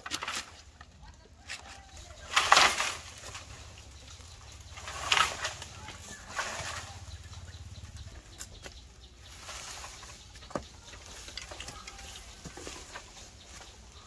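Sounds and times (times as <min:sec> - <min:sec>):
pole scraping through dry grass: 0:01.6 - 0:07.4, 0:09.2 - 0:14.0.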